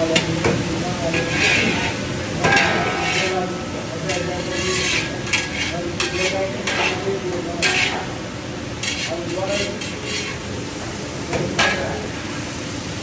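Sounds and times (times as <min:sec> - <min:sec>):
vegetables sizzling: 0:00.0 - 0:13.0
metal spatula scraping a wok: 0:01.1 - 0:08.2, 0:08.8 - 0:10.6.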